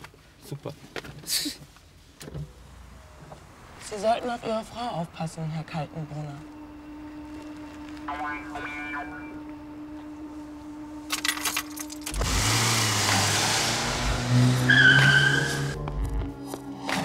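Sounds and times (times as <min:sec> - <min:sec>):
car engine revving: 0:03.9 - 0:17.0
tyre squeal: 0:14.5 - 0:15.8.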